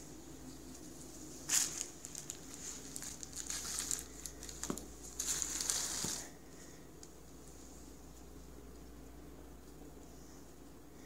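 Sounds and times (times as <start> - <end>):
plastic sheet crinkling: 0.7 - 6.4.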